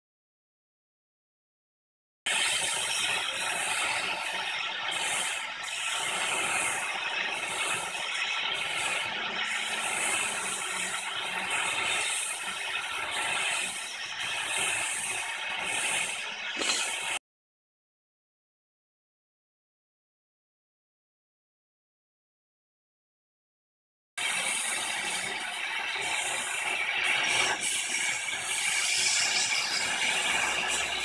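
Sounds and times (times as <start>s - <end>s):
torch flame hissing: 2.3s - 17.2s, 24.2s - 31.0s.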